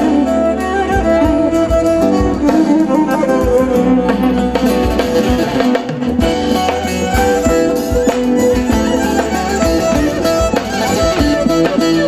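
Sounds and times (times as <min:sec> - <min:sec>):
bowed fiddle: 0:00.0 - 0:12.0
plucked lute: 0:00.0 - 0:12.0
drum beat: 0:00.9 - 0:12.0.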